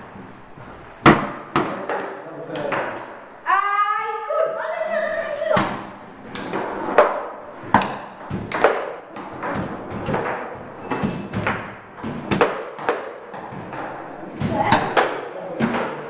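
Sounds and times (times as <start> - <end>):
table football clacks: 5.6 - 16.0.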